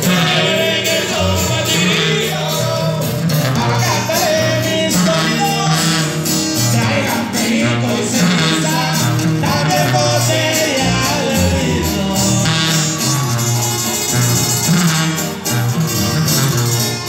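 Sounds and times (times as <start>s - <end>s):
bass line: 0.0s - 17.0s
live band playing: 0.0s - 17.0s
person singing: 6.8s - 13.8s.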